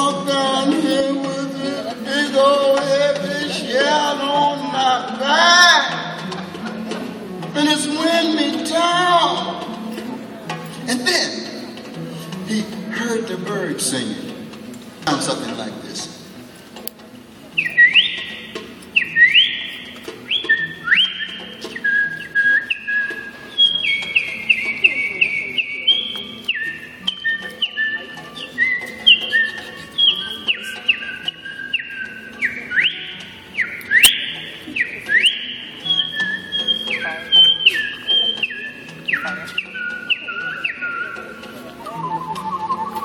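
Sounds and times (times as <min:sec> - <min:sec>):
whistled birdsong imitation: 0:17.6 - 0:18.4, 0:19.0 - 0:19.7, 0:20.3 - 0:41.2.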